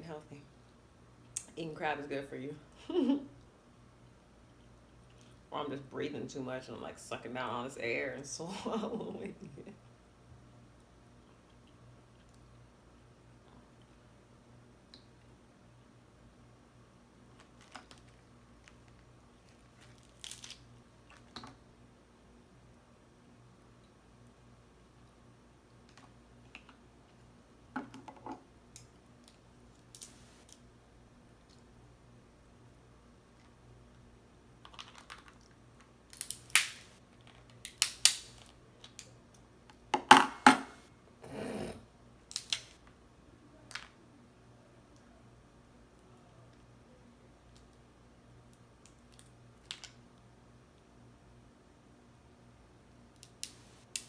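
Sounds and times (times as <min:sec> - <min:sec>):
crab shells cracking: 0:18.6 - 0:21.4, 0:34.6 - 0:35.5, 0:36.1 - 0:39.1, 0:42.3 - 0:42.8.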